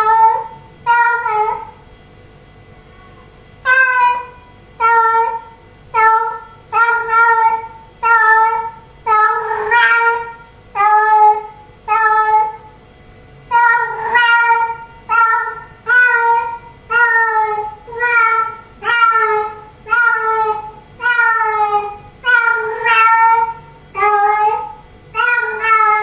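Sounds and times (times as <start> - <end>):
cat meowing loudly: 0.0 - 1.7, 13.5 - 26.0.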